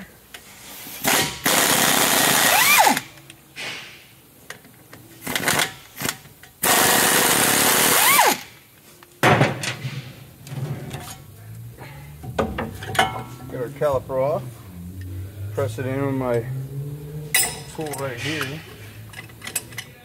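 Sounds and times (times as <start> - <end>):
pneumatic wrench whirring: 1.0 - 3.1, 5.2 - 8.5
metal parts clicking: 17.3 - 20.0.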